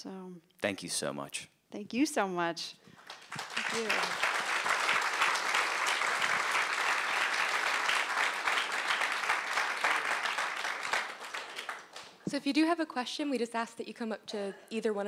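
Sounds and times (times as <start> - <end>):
audience applauding: 3.0 - 12.3.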